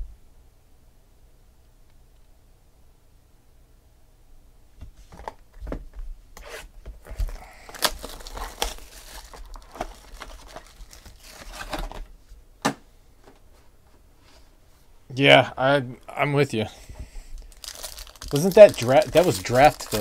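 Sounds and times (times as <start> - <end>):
plastic wrapper tearing and crinkling: 7.0 - 12.1, 17.4 - 20.0.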